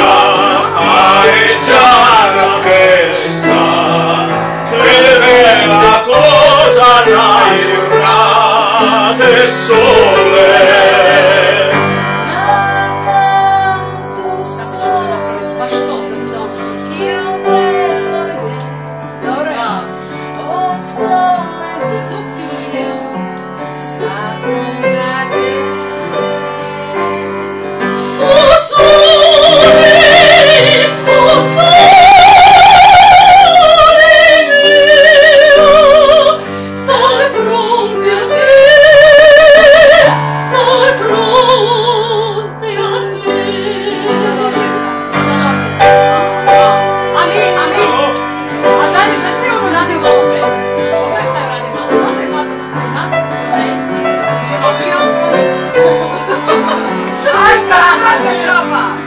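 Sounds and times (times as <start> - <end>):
piano: 0.0 - 59.0
woman singing operatically: 28.2 - 45.6.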